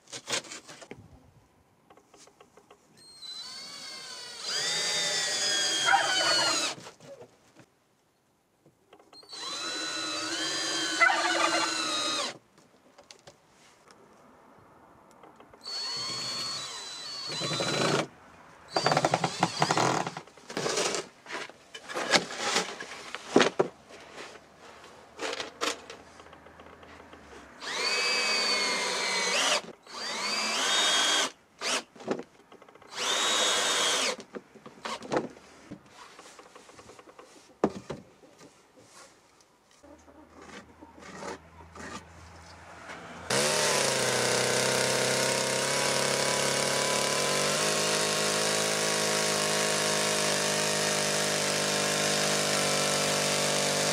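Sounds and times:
cordless drill driving screws: 0:03.0 - 0:06.8, 0:09.2 - 0:12.4, 0:15.6 - 0:18.1, 0:18.7 - 0:21.1, 0:27.6 - 0:31.9, 0:32.9 - 0:34.2, 0:43.3 - 0:53.9.

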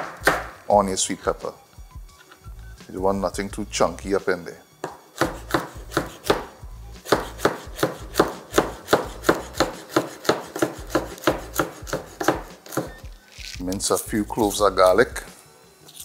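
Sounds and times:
knife chopping on wooden board: 0:00.0 - 0:00.6, 0:04.8 - 0:13.0.

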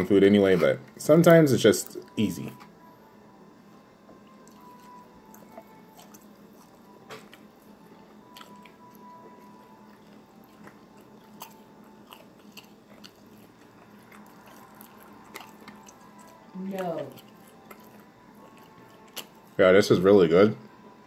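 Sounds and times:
person chewing crunchy food: 0:04.2 - 0:19.6.

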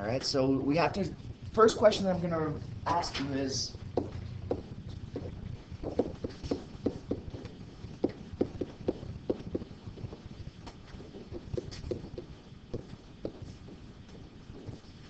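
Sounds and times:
pen knocking on writing surface: 0:04.0 - 0:10.2, 0:11.0 - 0:14.8.

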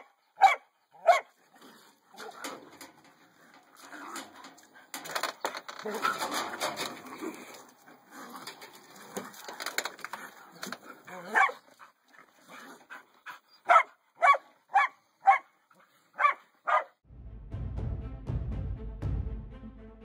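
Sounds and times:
dog barking: 0:00.0 - 0:01.3, 0:11.2 - 0:11.6, 0:13.6 - 0:15.5, 0:16.2 - 0:17.0.

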